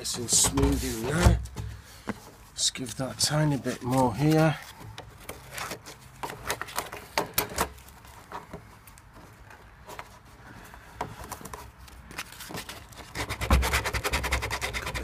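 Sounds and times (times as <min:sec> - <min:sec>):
sandpaper scratching plastic: 0:12.2 - 0:15.0.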